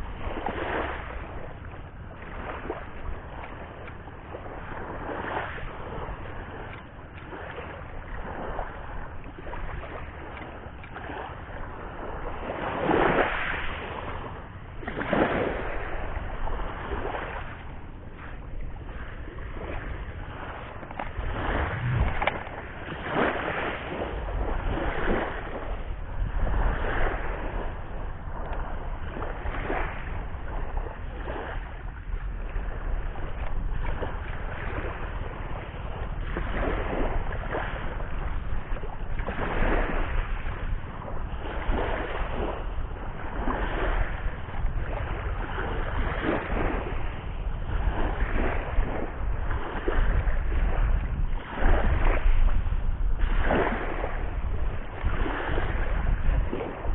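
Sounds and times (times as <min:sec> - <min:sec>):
sea waves washing onto shore: 0:00.0 - 0:56.9
wind rumbling on microphone: 0:00.0 - 0:56.9.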